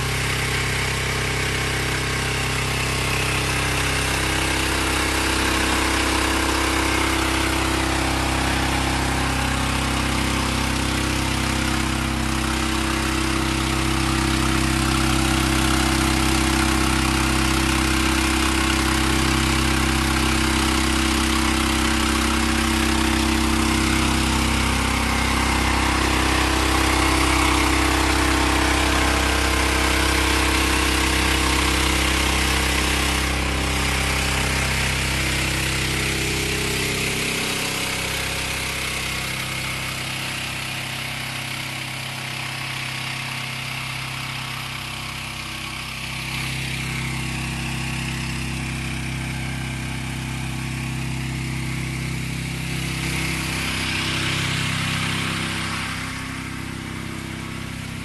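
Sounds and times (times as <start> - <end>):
engine running under load: 0.0 - 58.0.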